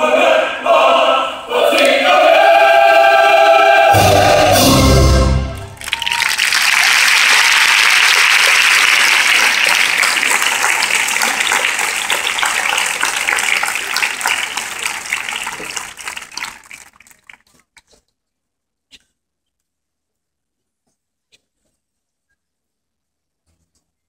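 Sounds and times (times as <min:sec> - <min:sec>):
audience applauding: 0:05.5 - 0:17.7.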